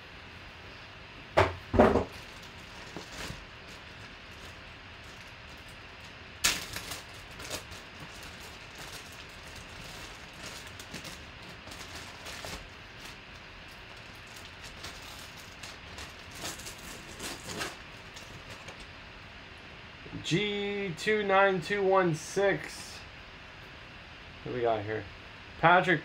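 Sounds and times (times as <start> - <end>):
plastic bag crinkling: 2.0 - 18.9
plastic bag snap: 6.4 - 7.8.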